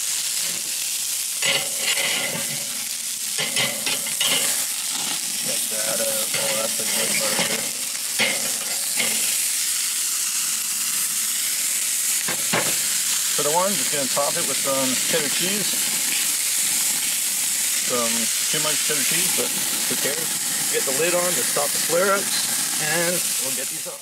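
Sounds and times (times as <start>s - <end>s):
burger patties sizzling on a grill: 0.0s - 24.0s
clicks and scrapes on metal grate: 1.4s - 2.6s, 3.4s - 4.6s.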